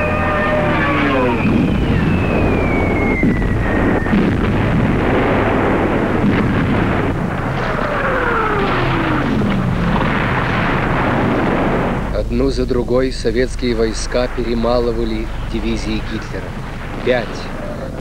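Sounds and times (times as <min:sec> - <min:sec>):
falling whistle: 0:00.0 - 0:04.5
continuous rumble: 0:00.0 - 0:18.0
explosions: 0:00.0 - 0:18.0.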